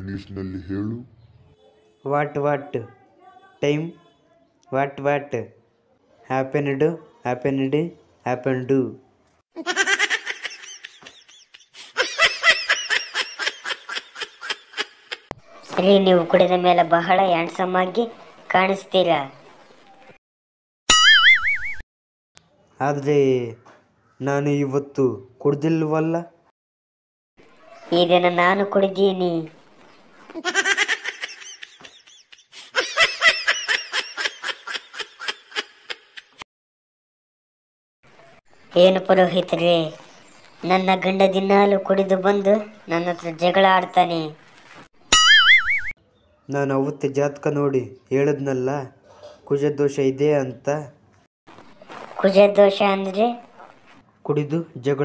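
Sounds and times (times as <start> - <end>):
person laughing: 9.6 - 15.3, 30.4 - 36.4.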